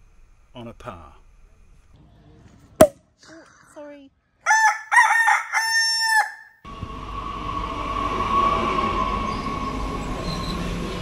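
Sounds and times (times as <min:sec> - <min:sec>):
outdoor background noise: 0:00.0 - 0:11.0
rooster crowing: 0:04.5 - 0:06.6.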